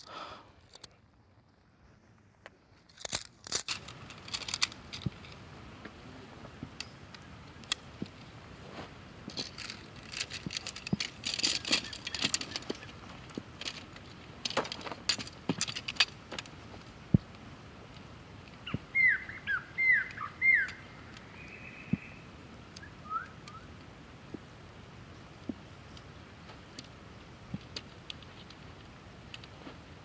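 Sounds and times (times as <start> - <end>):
dry grass rustling: 2.7 - 21.6
tent pole sections clicking: 2.8 - 5.5, 6.5 - 8.4, 9.3 - 18.9, 25.4 - 30.0.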